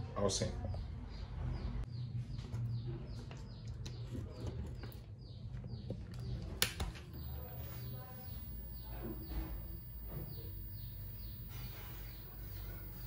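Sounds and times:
birds chirping: 7.1s - 13.0s
low steady hum: 7.2s - 13.0s
machine power switch click: 7.2s - 13.0s.

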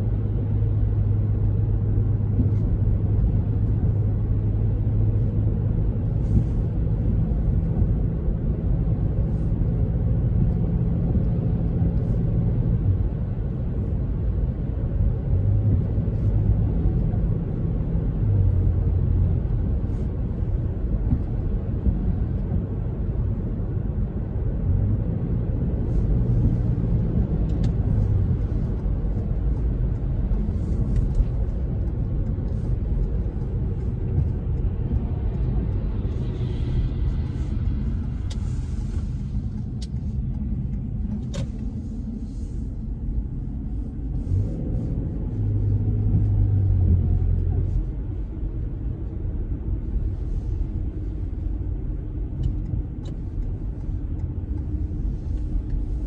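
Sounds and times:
car engine and road rumble: 0.0s - 56.0s
tyre noise on wet road: 0.1s - 56.0s.

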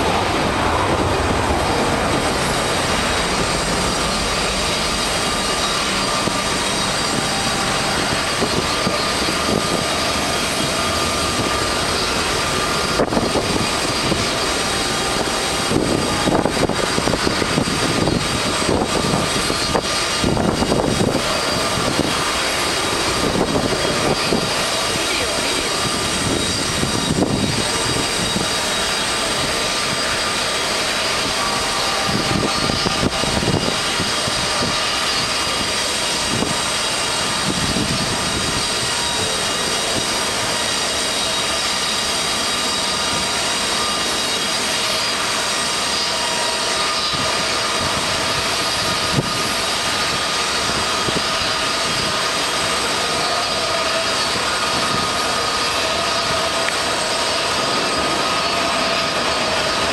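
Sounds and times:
low rumbles: 0.0s - 29.9s
continuous rushing roar: 0.0s - 59.9s
jet engines whining: 0.0s - 59.9s.

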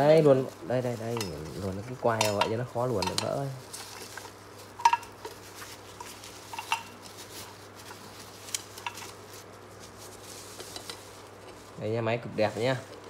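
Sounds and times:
plastic film rustling: 0.0s - 13.0s.

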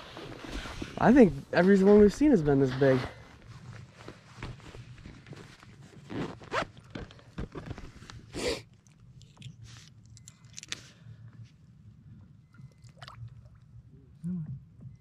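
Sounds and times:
waterproof clothing rustling: 0.0s - 8.3s.

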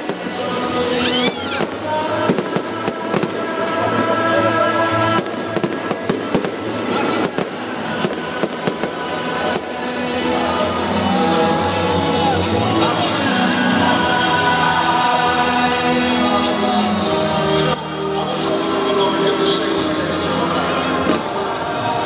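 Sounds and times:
fireworks bangs and crackles: 0.0s - 11.0s, 20.8s - 22.0s
music playing: 0.0s - 22.0s.

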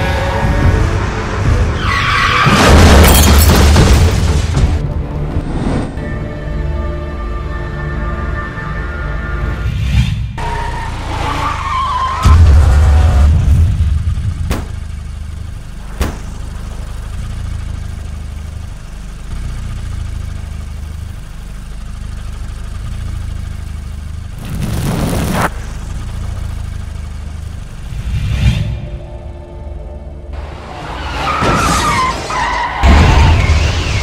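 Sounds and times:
car engine rumbling: 10.4s - 34.0s.

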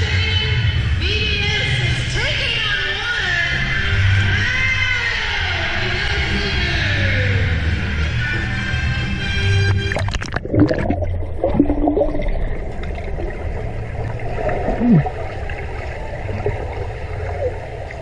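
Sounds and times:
muffled underwater churning: 9.8s - 18.0s.

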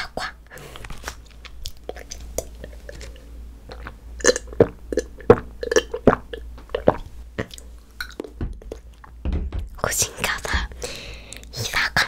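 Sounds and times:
person gulping and swallowing: 1.9s - 9.0s.

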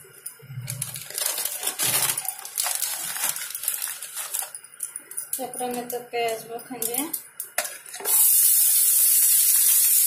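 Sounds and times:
hot oil sizzling in a frying pan: 8.0s - 10.0s.

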